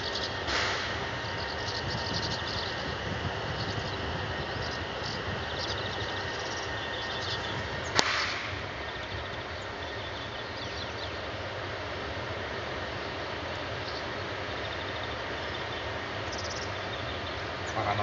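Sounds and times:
brief hiss: 0.5s - 1.0s
sharp crack: 0.5s - 1.0s, 7.9s - 8.6s.

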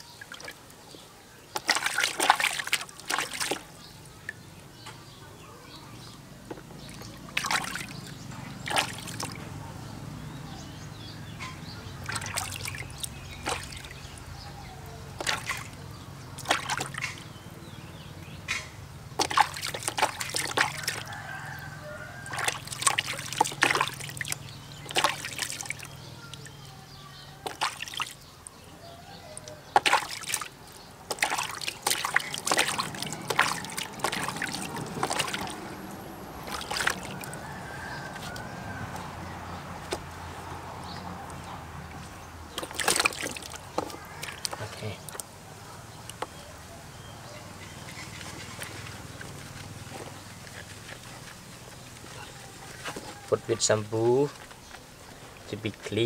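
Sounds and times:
water dripping: 0.0s - 4.5s, 6.5s - 9.5s, 10.9s - 17.6s, 18.4s - 26.6s, 27.4s - 28.6s, 29.3s - 38.5s, 39.9s - 46.6s
water splashing in basin: 0.0s - 4.5s, 6.5s - 9.6s, 10.9s - 17.6s, 18.6s - 26.6s, 27.3s - 28.3s, 29.2s - 46.5s, 47.8s - 51.1s.

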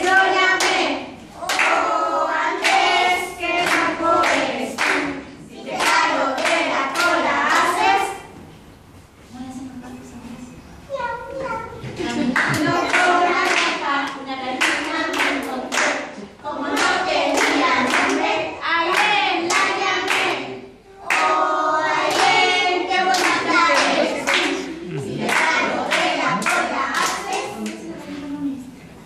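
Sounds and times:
children clapping hands: 0.0s - 2.0s, 2.6s - 5.1s, 5.7s - 8.0s, 12.2s - 16.0s, 16.7s - 20.4s, 21.1s - 27.8s
children singing: 0.0s - 8.3s, 12.4s - 14.1s, 14.9s - 27.5s.

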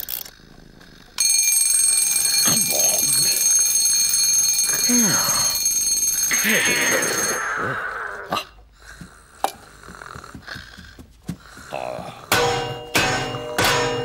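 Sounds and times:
alarm clock ringing: 1.2s - 8.0s, 12.3s - 14.0s.

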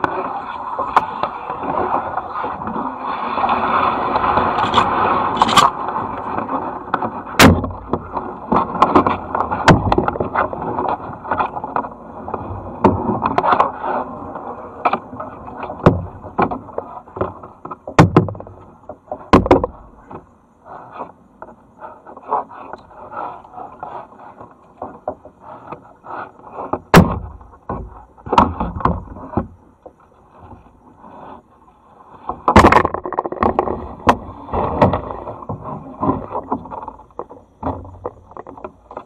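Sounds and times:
kayak scraping against branches: 0.0s - 39.0s
sharp knocks on kayak: 7.4s - 10.4s, 15.8s - 16.6s, 17.2s - 18.5s, 19.3s - 20.2s, 26.8s - 29.6s, 32.3s - 38.8s.

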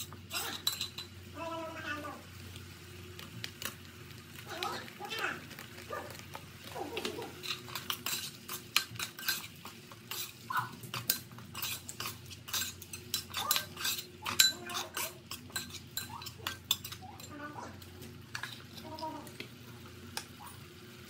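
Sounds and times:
metal ladle scraping a pot: 7.4s - 17.3s.

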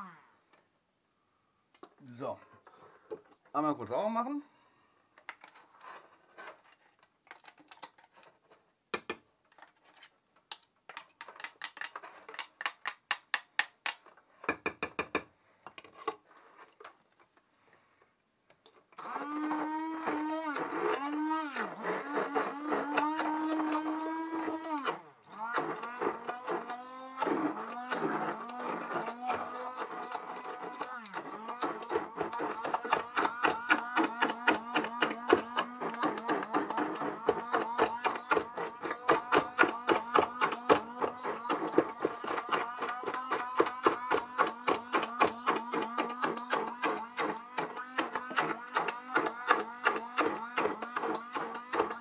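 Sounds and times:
stick blender running: 19.0s - 52.0s.

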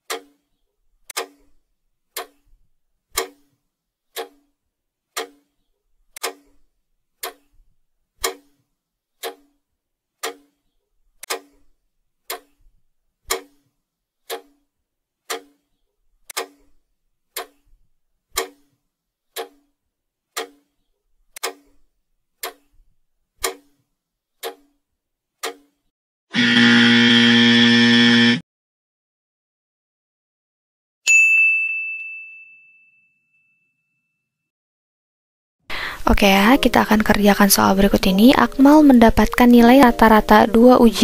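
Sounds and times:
clock ticking: 8.2s - 8.6s, 9.2s - 9.5s
loud sustained buzzer: 26.3s - 28.4s.

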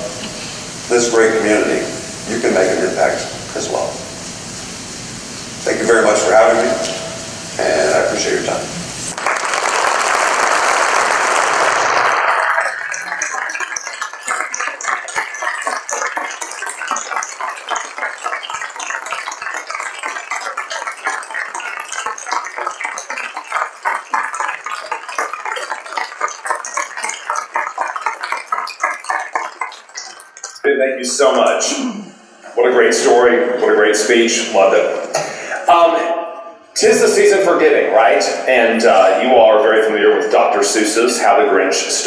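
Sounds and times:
audience applauding: 9.1s - 30.6s.

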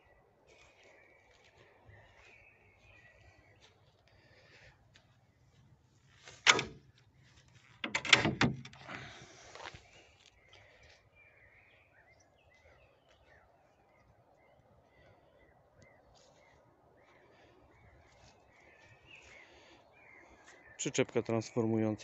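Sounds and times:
faint bird chirps: 0.0s - 4.7s, 9.7s - 21.6s
metallic knocks and clatter: 6.4s - 6.8s, 7.8s - 8.8s.

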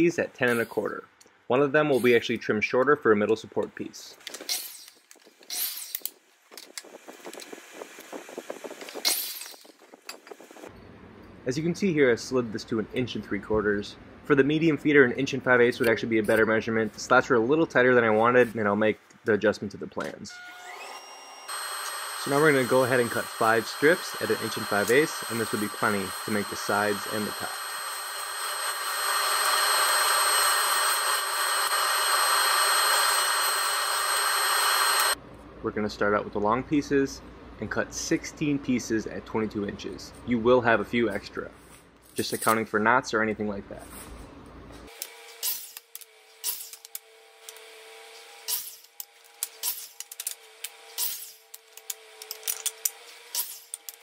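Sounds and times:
table saw ripping wood: 20.6s - 35.2s, 44.9s - 54.0s
steady hum: 21.5s - 35.2s.

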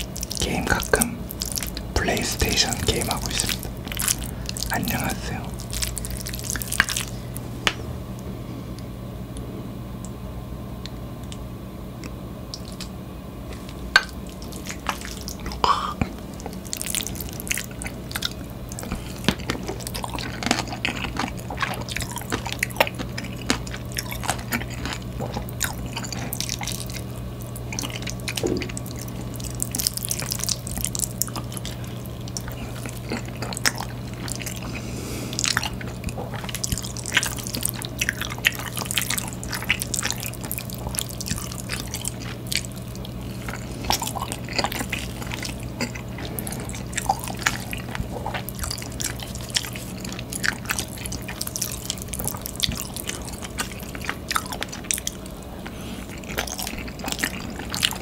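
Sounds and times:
wet squelching chewing: 0.0s - 7.8s, 12.0s - 58.0s
low hum: 0.0s - 58.0s
mouth clicks and smacks: 12.0s - 16.2s.

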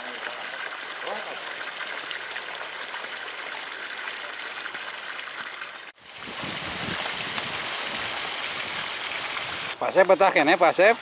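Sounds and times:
steady watery hiss: 0.0s - 11.0s
wind on microphone: 6.2s - 9.7s.

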